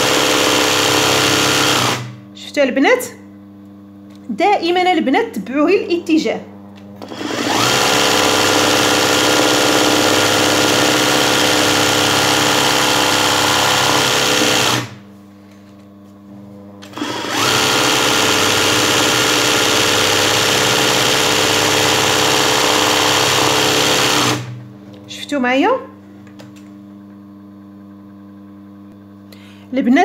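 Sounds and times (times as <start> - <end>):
sewing machine running: 0.0 - 2.2, 7.0 - 15.0, 16.8 - 24.6.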